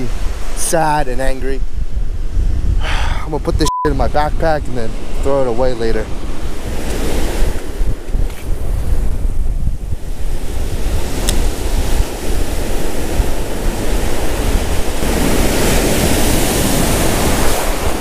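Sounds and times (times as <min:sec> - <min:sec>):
wind buffeting microphone: 0:00.0 - 0:18.0
ocean surf washing in: 0:04.1 - 0:18.0.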